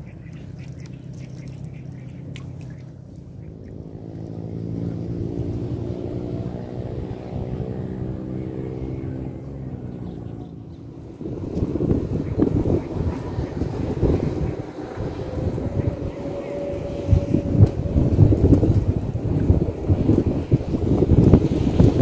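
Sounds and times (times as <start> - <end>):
passing motor engine humming: 0.0 - 22.0
wind noise on microphone: 10.8 - 22.0.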